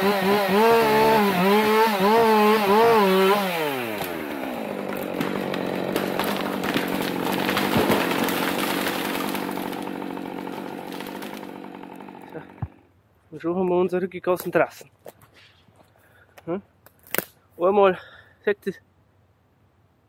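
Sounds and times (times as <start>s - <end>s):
branches snapping: 0.0s - 12.8s, 16.8s - 17.4s
tree cracking and crashing: 0.0s - 12.8s
chainsaw running: 0.0s - 12.9s.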